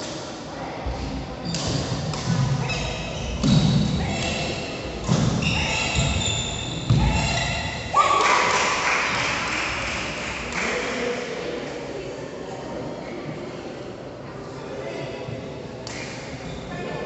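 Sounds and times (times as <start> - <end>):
racket hitting shuttlecock: 1.5 - 6.2.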